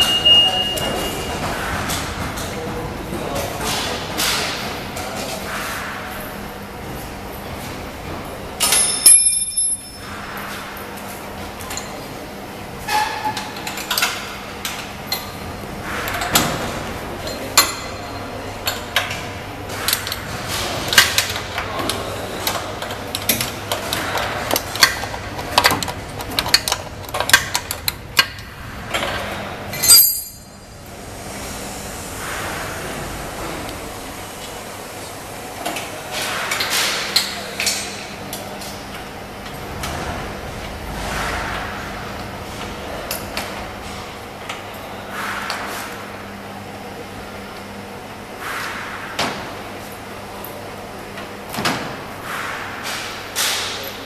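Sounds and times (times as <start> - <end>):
ringing metal clinks: 8.7 - 10.1, 29.8 - 30.6.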